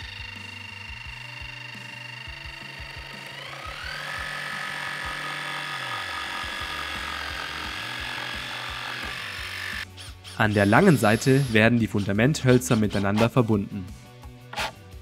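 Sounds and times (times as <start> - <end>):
jigsaw cutting wood: 0.0 - 9.9.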